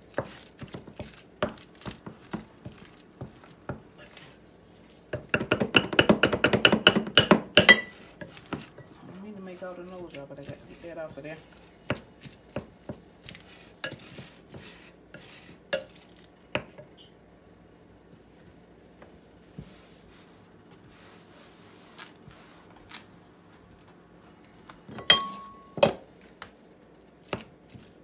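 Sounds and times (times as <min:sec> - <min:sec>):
spatula stirring thick filling: 0:00.0 - 0:17.1, 0:19.4 - 0:23.3, 0:25.1 - 0:28.0
spatula knocking glass bowl: 0:24.9 - 0:26.0
sharp clink: 0:25.0 - 0:25.8.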